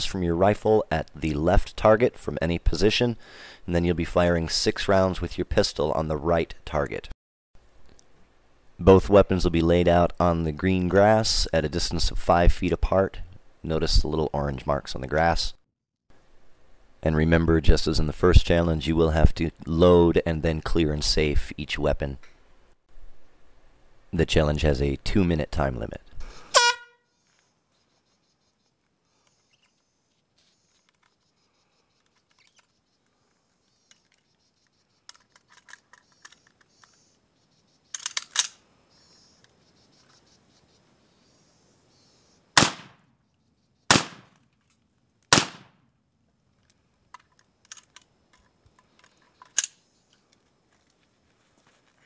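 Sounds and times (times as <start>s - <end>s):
rifle loading clicks: 35.1s - 37.0s, 37.9s - 38.6s, 46.6s - 49.8s
rifle action clack: 37.9s - 38.6s
rifle shots: 42.6s - 43.0s, 43.9s - 44.4s, 45.3s - 45.8s.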